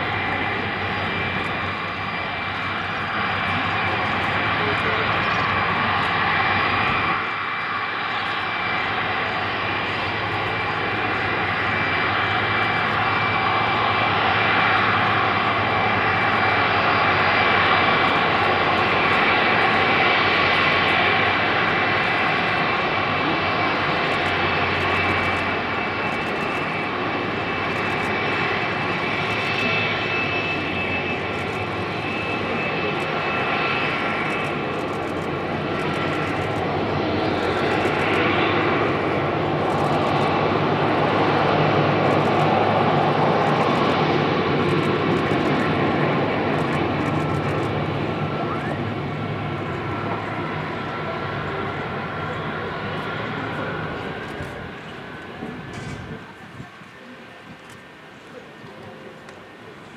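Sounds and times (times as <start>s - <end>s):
high whistling engine tones: 0.0s - 56.2s
jet engines taxiing: 0.0s - 59.9s.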